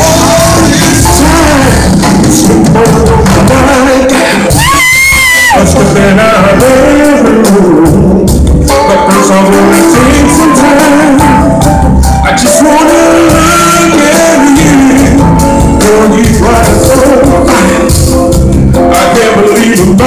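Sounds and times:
band playing: 0:00.0 - 0:20.0
man singing: 0:00.0 - 0:20.0.

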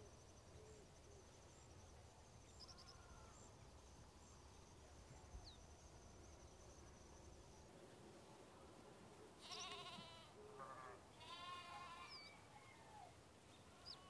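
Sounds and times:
goat bleating: 0:09.4 - 0:10.3, 0:11.2 - 0:12.2.

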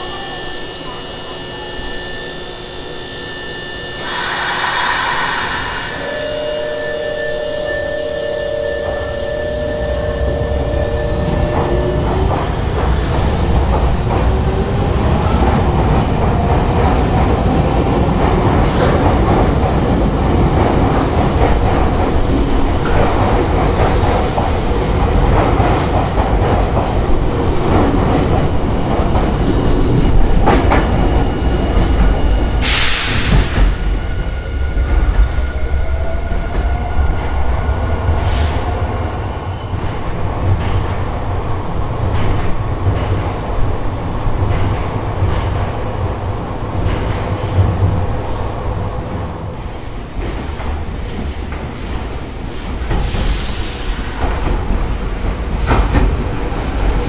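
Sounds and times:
train wheels clacking on track: 0:11.2 - 0:34.0, 0:42.0 - 0:57.0.

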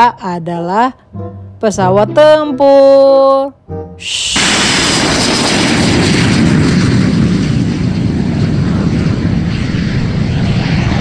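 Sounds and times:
jet engine roar: 0:04.0 - 0:11.0.

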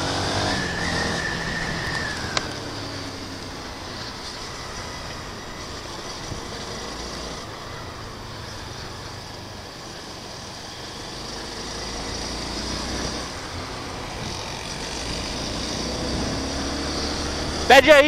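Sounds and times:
motorcycle engine running: 0:00.0 - 0:18.0
wind rushing over microphone: 0:12.7 - 0:17.8.

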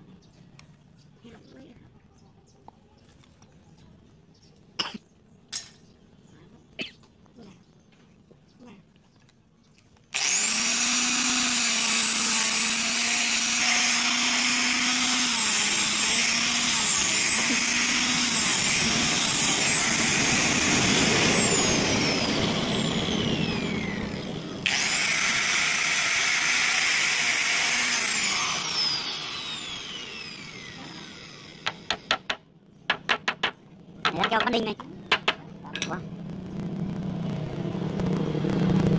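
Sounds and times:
angle grinder whining: 0:10.1 - 0:32.3
sharp knocks: 0:31.6 - 0:36.0.

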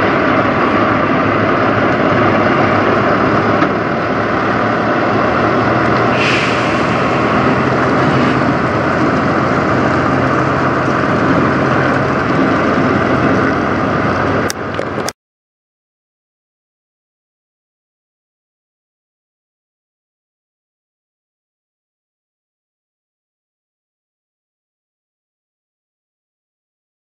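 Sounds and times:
truck diesel engine: 0:00.0 - 0:15.2
air hiss: 0:06.1 - 0:08.5.

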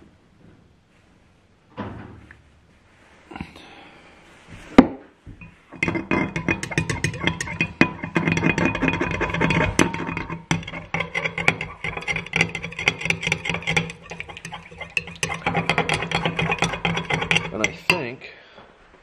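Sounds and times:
metal stick scraping glass cup: 0:05.4 - 0:18.2.

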